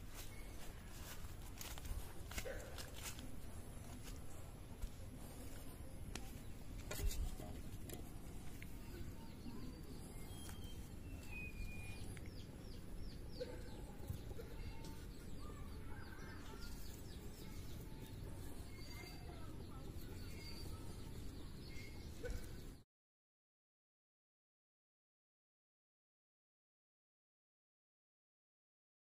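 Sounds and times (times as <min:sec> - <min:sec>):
birds chirping: 0:00.0 - 0:22.8.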